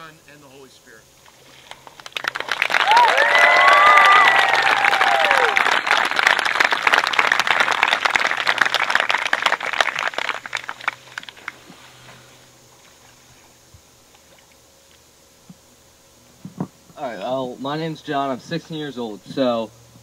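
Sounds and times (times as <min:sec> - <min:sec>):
crowd clapping: 0:01.7 - 0:11.6
cheering whoop: 0:02.6 - 0:05.9.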